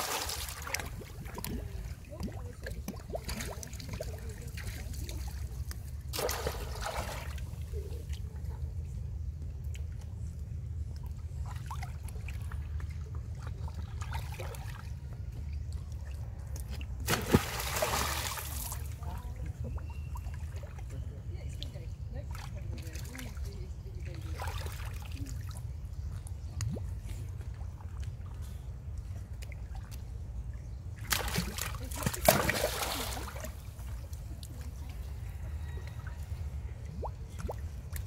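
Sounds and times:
water splashing: 0.0s - 8.4s, 17.0s - 20.8s, 31.0s - 35.0s
water sloshing and trickling: 0.0s - 38.0s.

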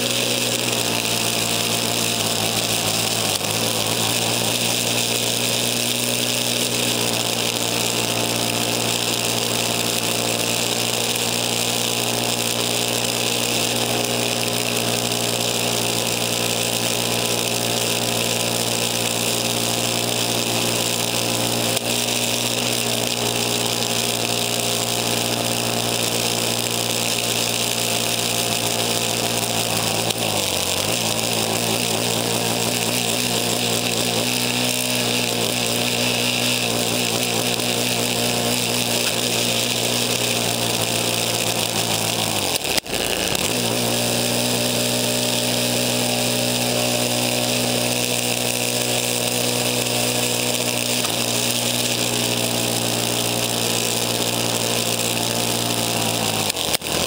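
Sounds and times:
snow hissing: 0.0s - 57.0s
snowblower engine running: 0.0s - 57.0s.

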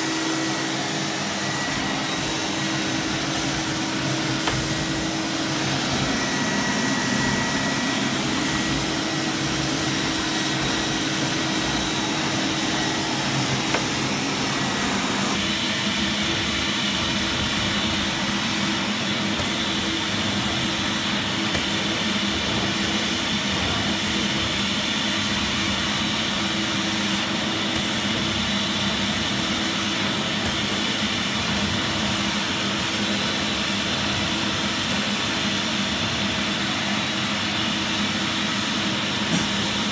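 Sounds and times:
vacuum cleaner running: 0.0s - 39.9s.

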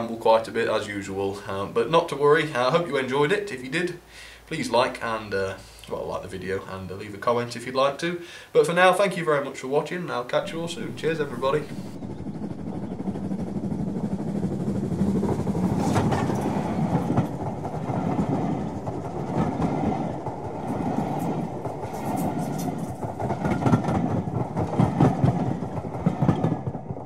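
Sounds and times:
train wheels rumbling on rails: 10.4s - 27.0s.

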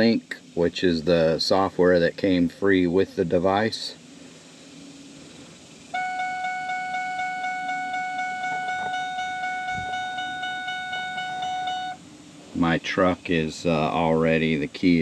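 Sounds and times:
pulsing dashboard warning chime: 5.9s - 12.0s.

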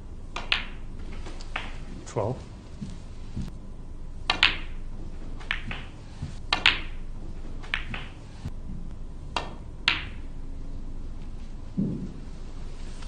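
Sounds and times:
snooker balls clicking: 0.3s - 3.5s, 4.2s - 10.4s.

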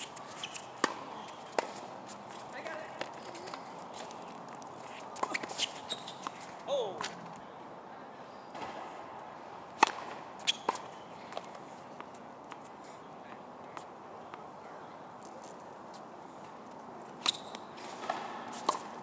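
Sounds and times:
tennis balls struck and bouncing: 0.0s - 1.9s, 9.8s - 12.6s, 17.1s - 19.0s
shoe squeak: 0.0s - 2.5s, 3.1s - 6.6s, 10.4s - 11.3s, 17.2s - 18.8s.

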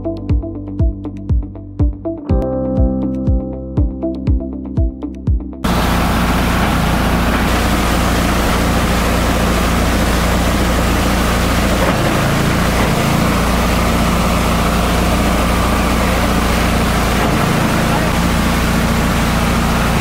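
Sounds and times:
shredder shredding paper: 5.7s - 20.0s.

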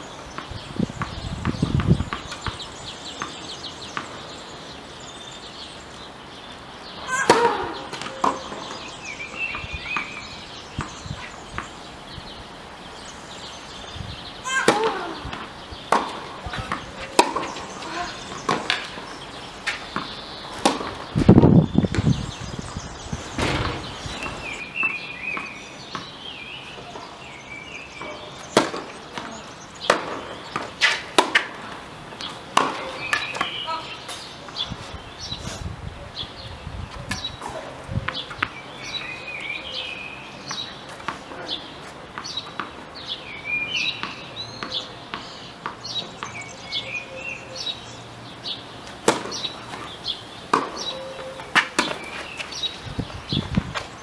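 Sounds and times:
tennis ball bouncing: 0.3s - 4.3s, 7.1s - 8.8s, 14.5s - 22.1s, 28.0s - 33.6s, 42.1s - 42.8s, 44.0s - 46.4s, 48.8s - 52.8s
racket striking ball: 7.2s - 8.8s, 14.5s - 19.0s, 19.7s - 22.1s, 28.0s - 31.6s, 32.5s - 33.6s, 49.0s - 49.9s, 50.5s - 52.5s.

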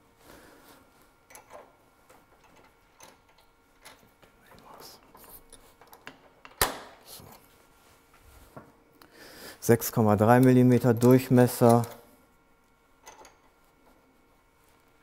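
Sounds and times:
metal tools clicking and tapping: 1.3s - 1.7s, 10.3s - 12.0s, 13.0s - 13.5s.

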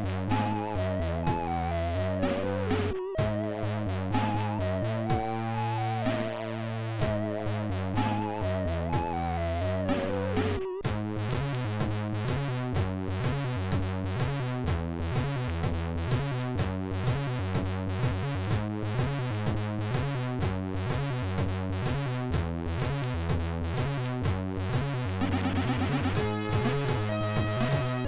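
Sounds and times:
synthesized chiptune music: 0.0s - 10.8s, 25.2s - 28.0s.

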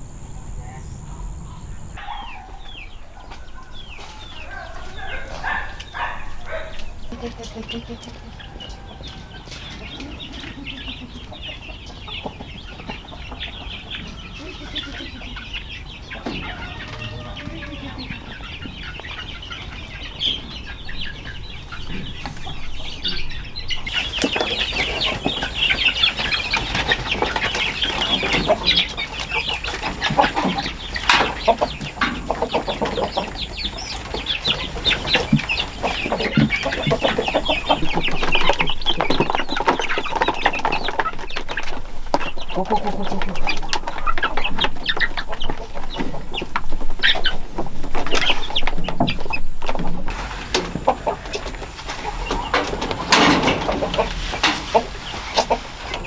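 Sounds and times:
chicks clucking and cheeping: 0.0s - 56.0s.

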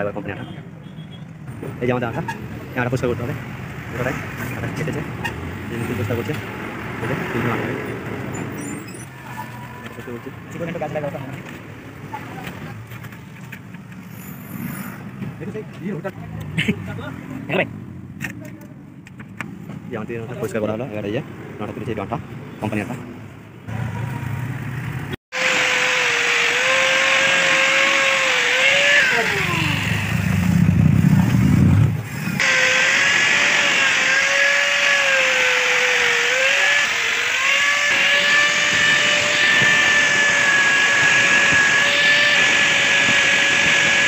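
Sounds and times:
angle grinder whining: 25.3s - 30.7s, 32.2s - 44.0s.

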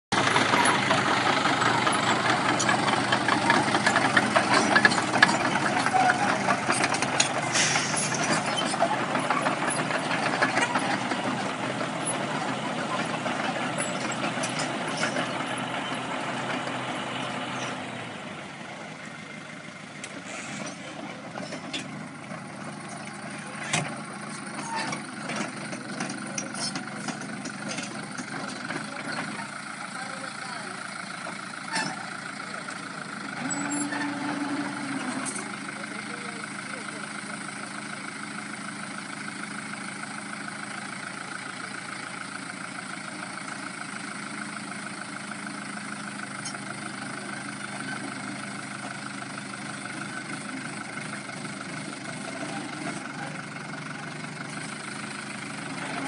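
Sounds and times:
diesel tractor engines running: 0.1s - 56.0s
machinery knocks and clanks: 0.2s - 15.9s, 21.2s - 29.7s.

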